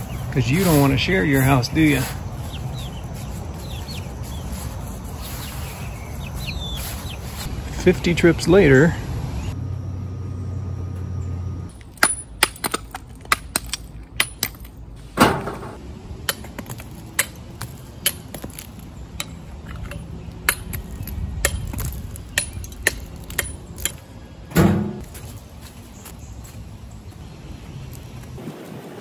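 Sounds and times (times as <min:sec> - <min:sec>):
heavy hammer clunks: 0:24.5 - 0:25.0.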